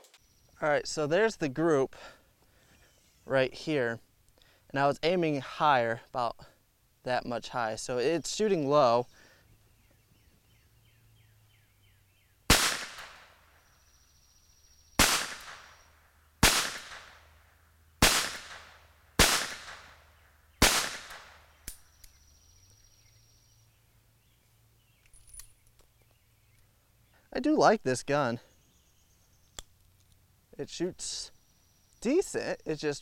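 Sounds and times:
revolver gunshots: 12.5 - 13.6, 15.0 - 17.4, 18.0 - 21.6.

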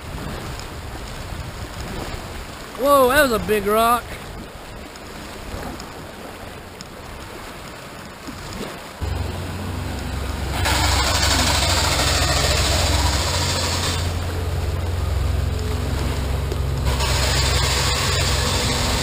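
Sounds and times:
creek water rushing: 0.0 - 19.0
low rumble: 9.0 - 19.0.

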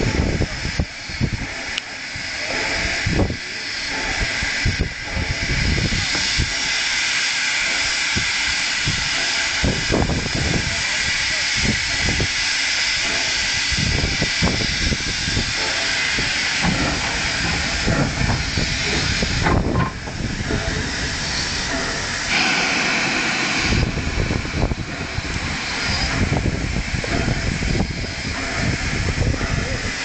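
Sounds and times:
steam locomotive hissing: 0.0 - 30.0
low rumbling with knocks: 13.0 - 22.3, 23.6 - 30.0.

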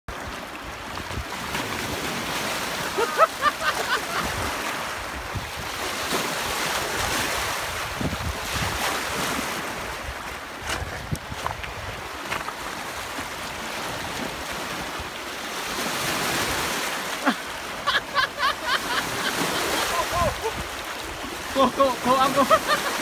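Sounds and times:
river water splashing on rocks: 0.1 - 23.0
wind on microphone: 3.8 - 15.1, 19.1 - 21.5.

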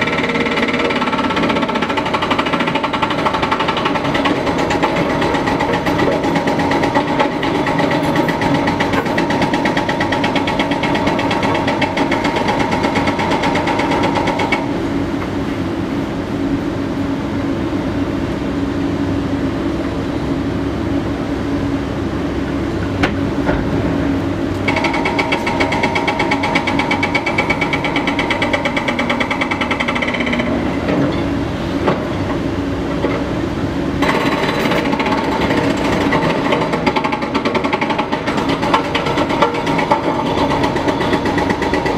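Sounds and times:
hydraulic breaker pounding rock: 0.0 - 14.7, 23.0 - 33.3, 34.0 - 41.9
excavator diesel engine: 0.0 - 41.9.

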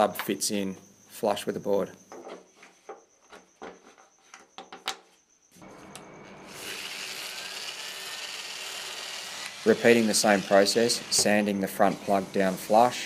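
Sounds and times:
angle grinder sanding: 6.2 - 13.0.

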